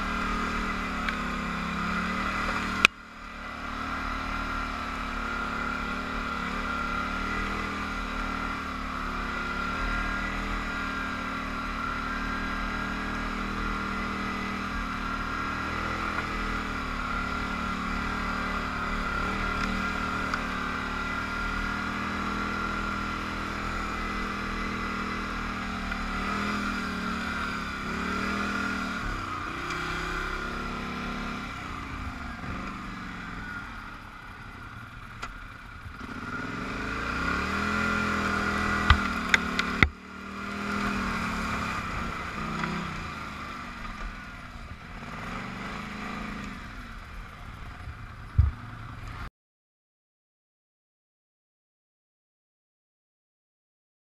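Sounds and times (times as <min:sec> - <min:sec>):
atv engine revving: 0:00.0 - 0:49.3.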